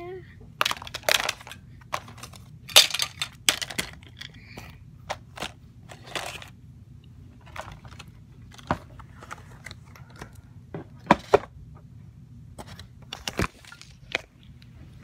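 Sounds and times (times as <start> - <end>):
objects clattering in plastic basket: 0.6 - 6.5, 7.4 - 10.2.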